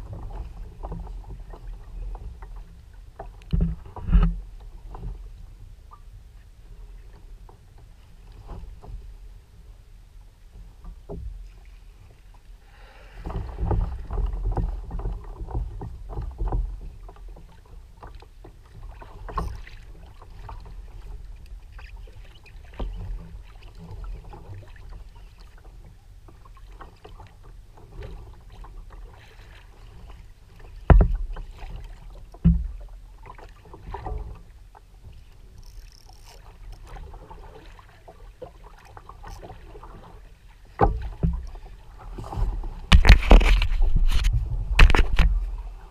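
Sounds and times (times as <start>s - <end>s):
water splashing against kayak hull: 0.0s - 9.8s, 10.4s - 45.9s
knocks on plastic hull: 42.9s - 43.7s.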